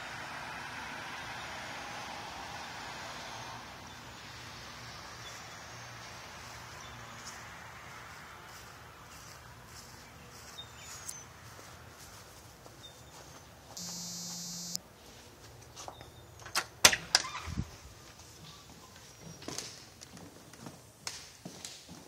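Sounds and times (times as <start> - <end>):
electronic beep: 13.8 - 14.8.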